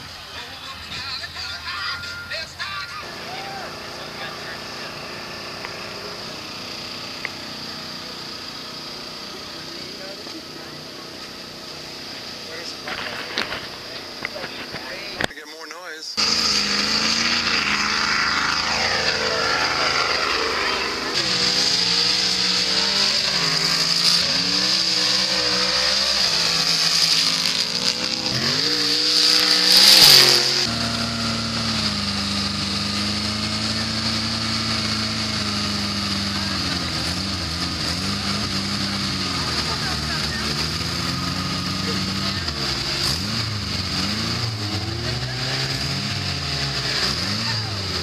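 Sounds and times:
off-road engines revving: 0.0s - 15.4s, 16.2s - 48.0s
rising-and-falling rush: 16.2s - 42.0s.

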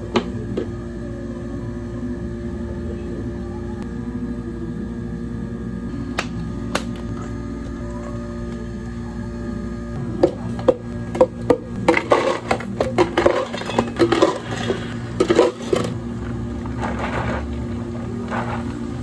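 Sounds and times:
steady low hum: 0.0s - 19.0s
ice cubes clinking into plastic cups: 10.6s - 16.0s.

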